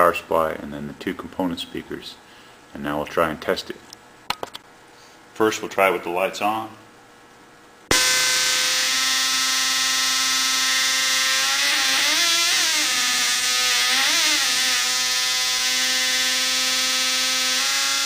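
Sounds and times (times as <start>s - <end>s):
harsh electronic buzz: 7.9s - 18.0s.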